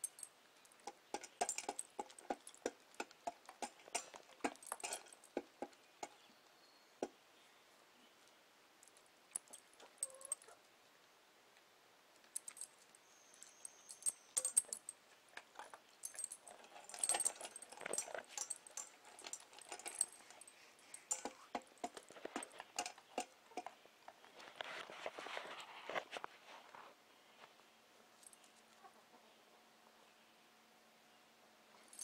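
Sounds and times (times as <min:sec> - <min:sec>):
kibble rattling in metal bowl: 0:00.0 - 0:05.6, 0:13.9 - 0:23.7
collar tags jingling: 0:00.0 - 0:06.4, 0:08.8 - 0:10.6, 0:12.3 - 0:24.2, 0:31.8 - 0:32.0
rustle: 0:00.0 - 0:32.0.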